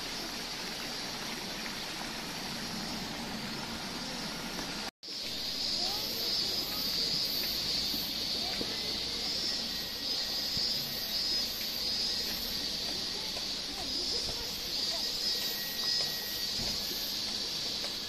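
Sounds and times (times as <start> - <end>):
high pulsing hiss: 0.0 - 18.0
faint distant voices: 3.8 - 18.0.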